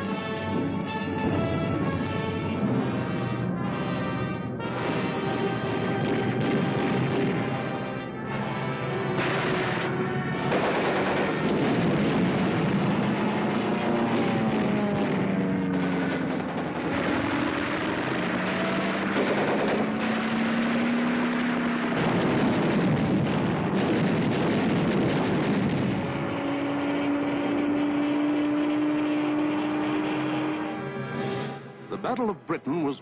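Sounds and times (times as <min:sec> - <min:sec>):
aircraft engines droning: 0:00.0 - 0:33.0
machine-gun fire: 0:04.7 - 0:07.9, 0:09.2 - 0:26.1
rising whine: 0:11.4 - 0:32.0.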